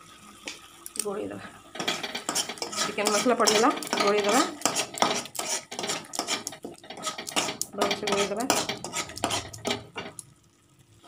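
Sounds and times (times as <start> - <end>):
wooden spatula scraping paste in pan: 1.8 - 10.2.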